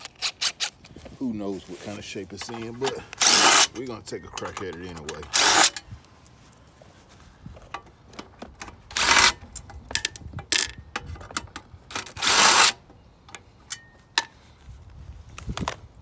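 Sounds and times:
socket and metal parts clinking: 0:02.4 - 0:05.9
impact driver bursts: 0:03.2 - 0:03.7, 0:05.3 - 0:05.8.

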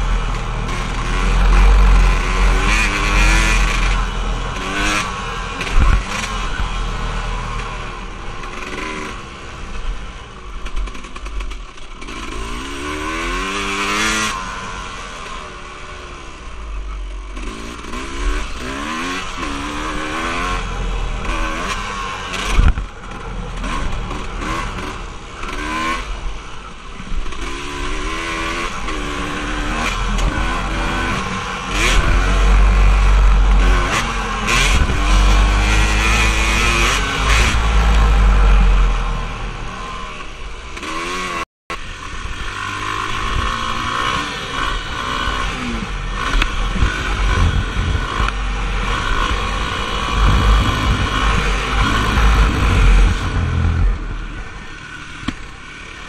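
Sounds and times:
off-road vehicle engine revving: 0:00.0 - 0:10.0, 0:10.6 - 0:56.0
wind rumble on microphone: 0:46.2 - 0:54.6.

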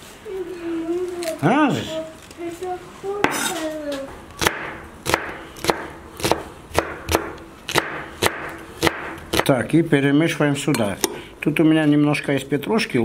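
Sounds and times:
knife chopping on wooden board: 0:04.4 - 0:09.5.

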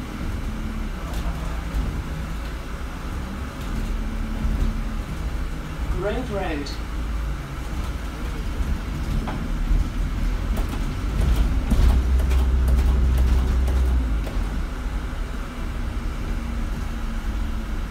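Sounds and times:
bus engine chugging rumble: 0:00.0 - 0:17.9.

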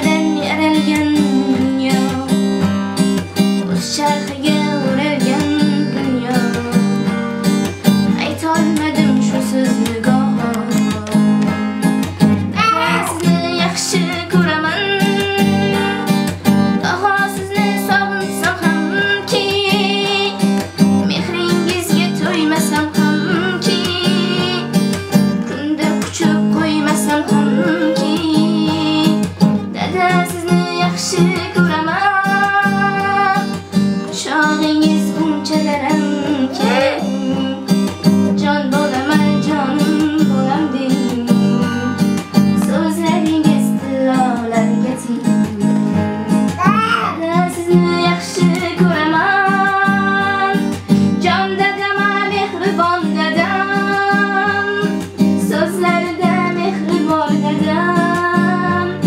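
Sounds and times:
acoustic guitar: 0:00.0 - 0:59.0
woman singing: 0:00.0 - 0:59.0.

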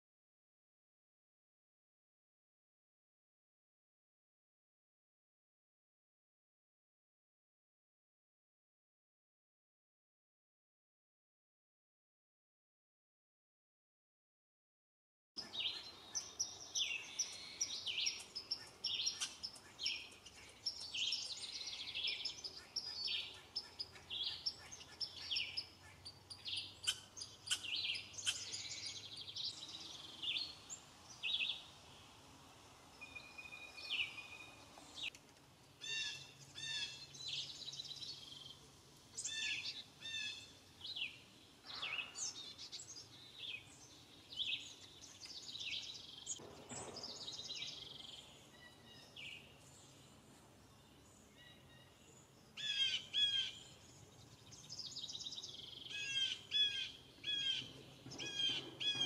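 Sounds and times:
songbirds singing and calling: 0:15.4 - 0:59.0.

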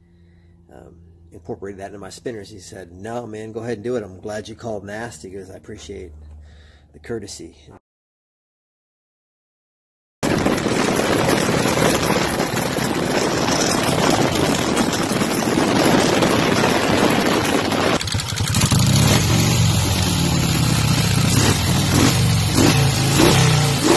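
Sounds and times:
motorcycle engine running loud: 0:10.2 - 0:23.9.

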